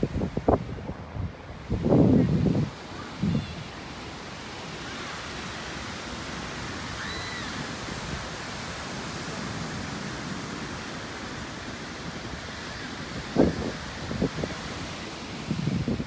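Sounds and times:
rushing wind: 0.0 - 16.0.

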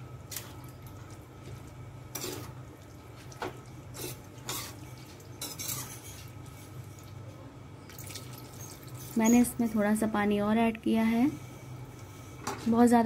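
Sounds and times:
steady low hum: 0.0 - 13.0
ladle scraping and clinking pan: 4.0 - 6.7.

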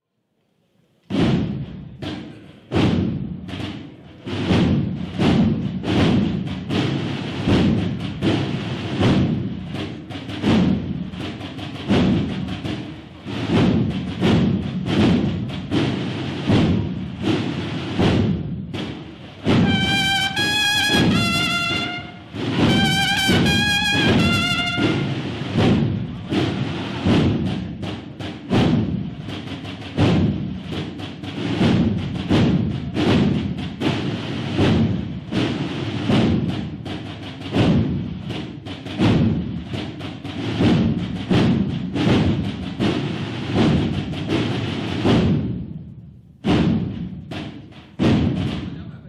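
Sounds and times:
steady drum beat: 1.1 - 49.0
brass band march: 1.2 - 45.8
high brass held notes: 19.5 - 25.2.

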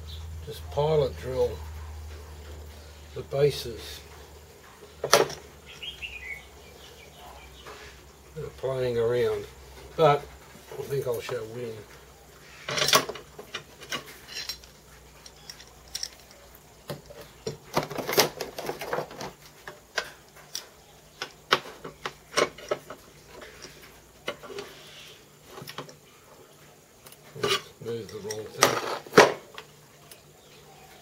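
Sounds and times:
metallic clinks and knocks: 12.7 - 24.6.

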